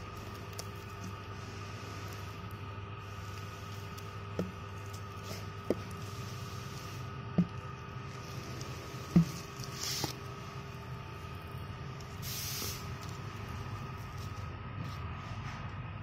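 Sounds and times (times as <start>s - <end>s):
plastic film crinkling: 0.0s - 6.6s
steady hum: 0.0s - 16.0s.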